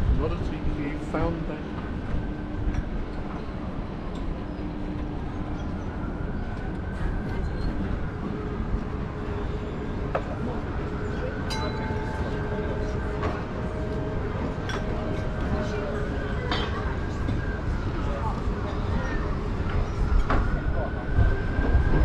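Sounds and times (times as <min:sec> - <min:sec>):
city ambience rumble: 0:00.0 - 0:22.0.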